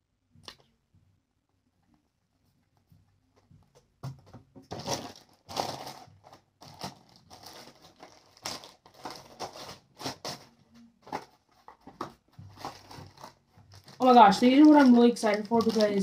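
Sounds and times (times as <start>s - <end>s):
packaging crinkling and tearing: 4.7s - 11.3s, 12.5s - 16.0s.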